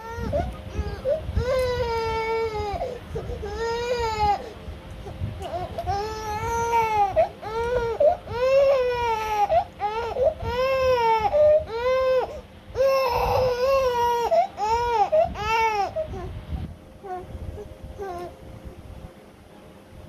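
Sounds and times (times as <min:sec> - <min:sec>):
baby crying: 0:05.5 - 0:16.3.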